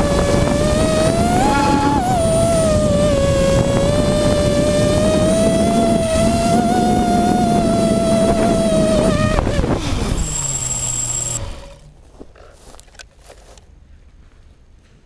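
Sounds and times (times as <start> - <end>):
drone motors and propellers whining: 0.0 - 12.0.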